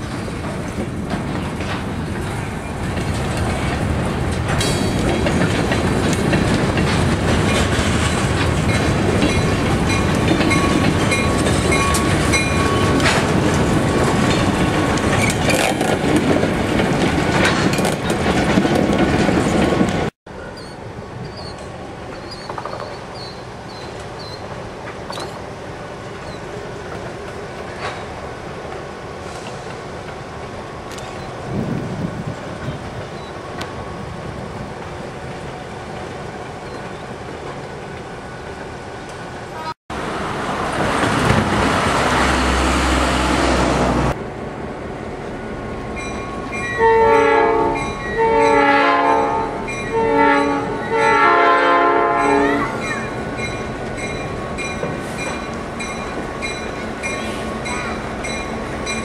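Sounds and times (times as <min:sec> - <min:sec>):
wheels clicking over rail joints: 0:00.0 - 0:25.6
freight train passing: 0:00.0 - 0:59.0.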